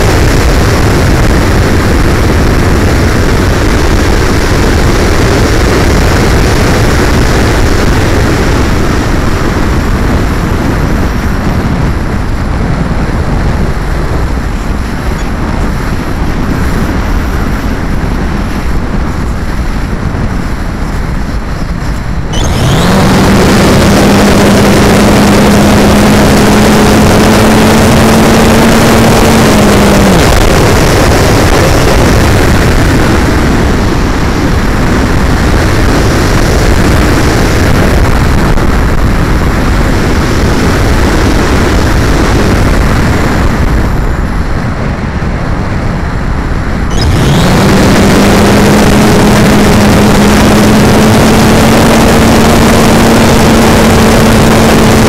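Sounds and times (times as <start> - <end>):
air rushing over glider: 0.0 - 55.0
electric motor and propeller whine: 0.0 - 55.0.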